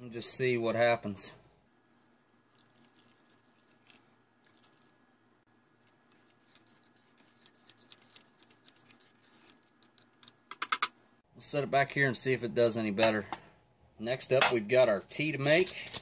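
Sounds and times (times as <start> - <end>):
plastic spoon stirring in bowl: 5.8 - 10.4.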